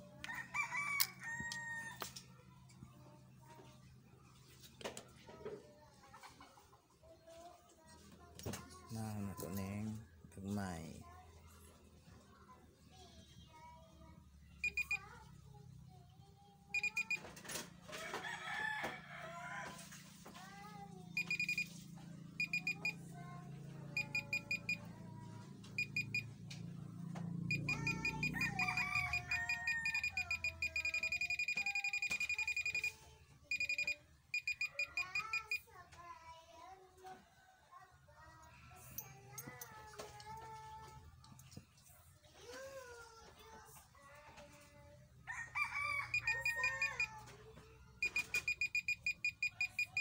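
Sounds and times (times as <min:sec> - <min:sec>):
metal detector beeping: 0:14.6 - 0:15.0, 0:16.8 - 0:17.3, 0:21.2 - 0:21.8, 0:22.4 - 0:23.0, 0:24.0 - 0:24.9, 0:25.6 - 0:26.4, 0:27.5 - 0:35.6, 0:46.1 - 0:47.1, 0:48.0 - 0:50.0.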